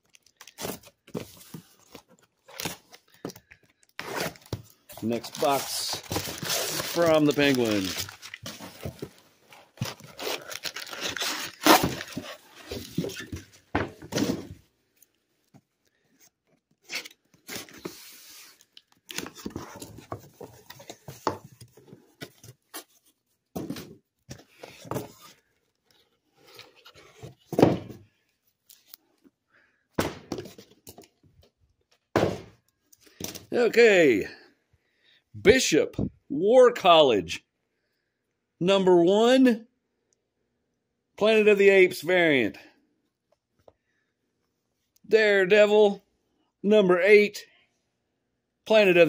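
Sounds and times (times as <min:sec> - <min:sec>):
packing material crinkling: 0:00.0 - 0:00.7, 0:03.8 - 0:13.4
rustling and handling noises: 0:00.0 - 0:29.4
tape tearing: 0:03.9 - 0:09.0, 0:09.8 - 0:13.4.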